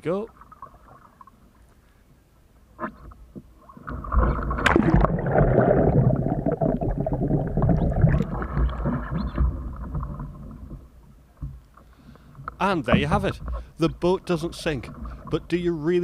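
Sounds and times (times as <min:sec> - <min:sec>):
water splashing and gurgling: 0:03.5 - 0:11.3
muffled underwater bubbling: 0:03.7 - 0:10.9.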